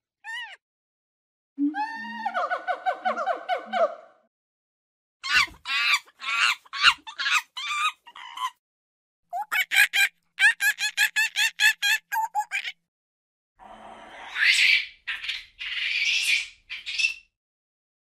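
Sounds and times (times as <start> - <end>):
monkey screeching calls: 5.2 - 8.6.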